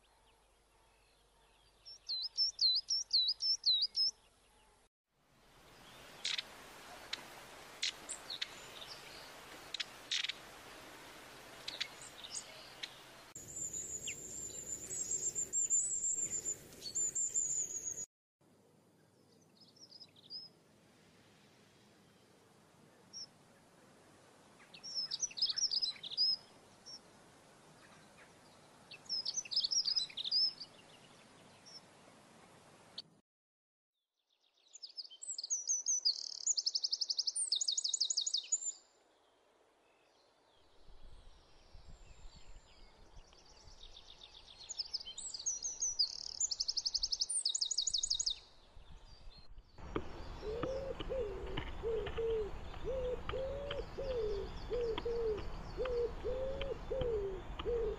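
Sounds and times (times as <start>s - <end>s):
songbirds twittering and trilling: 0.0s - 4.9s, 5.7s - 7.2s, 7.8s - 10.5s, 11.6s - 18.1s, 18.9s - 20.6s, 24.6s - 32.6s, 34.4s - 57.9s
low cooing call: 50.4s - 57.9s.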